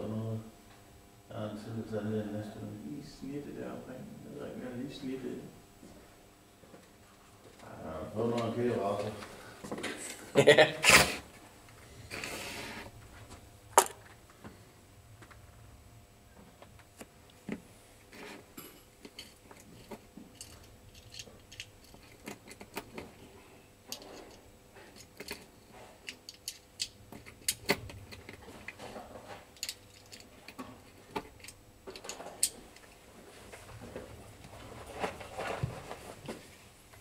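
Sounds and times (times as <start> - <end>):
small clicks and metallic clinks: 18.6 - 23.0, 23.9 - 28.4, 29.6 - 33.0.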